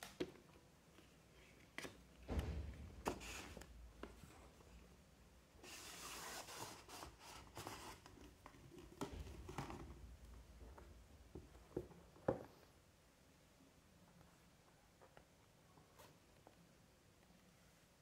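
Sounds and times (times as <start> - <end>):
paper sleeve sliding off box: 5.6 - 8.0.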